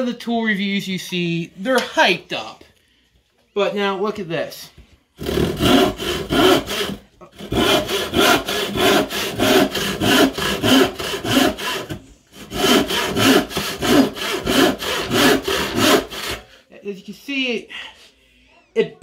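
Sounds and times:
hand saw cutting a board: 5.2s - 16.5s.

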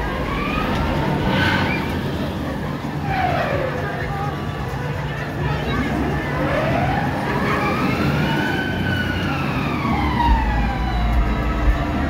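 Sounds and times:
siren-like wail of ride: 0.0s - 2.2s, 3.0s - 4.0s, 6.3s - 12.0s
low rumble with thumps: 10.1s - 12.0s.

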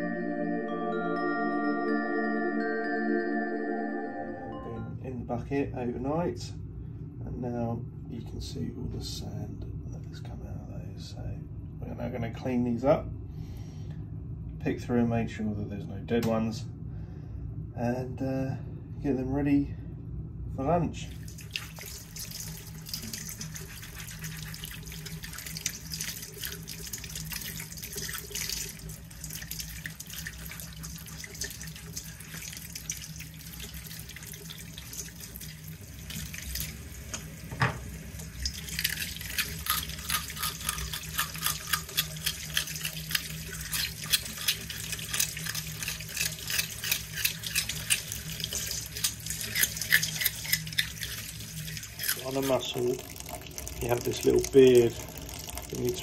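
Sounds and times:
tap running into colander: 21.3s - 56.0s.

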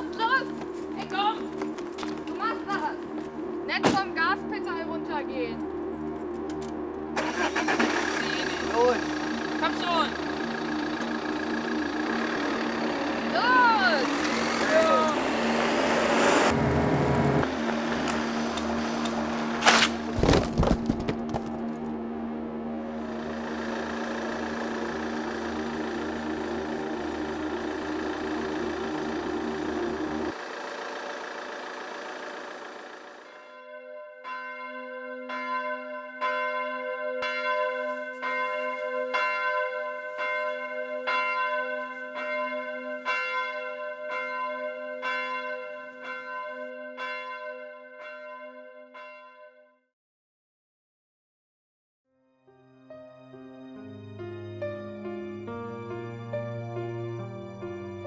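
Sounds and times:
steady droning: 0.0s - 33.3s
church bell tolling: 33.2s - 49.8s.

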